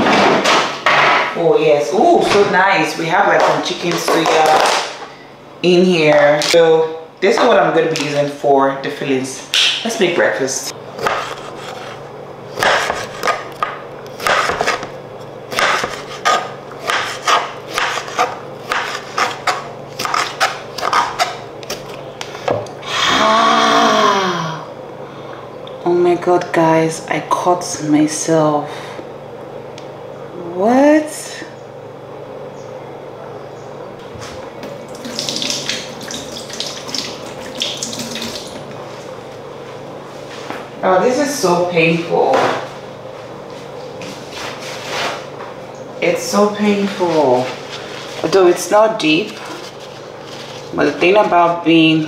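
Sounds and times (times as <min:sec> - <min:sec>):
tap water running into sink: 0:34.9 - 0:38.6.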